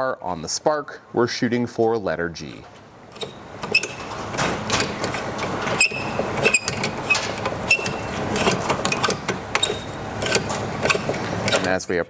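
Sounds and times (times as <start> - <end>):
hex tool turning metal bolt: 3.1 - 11.8
metallic rattle and scrape: 3.1 - 11.8.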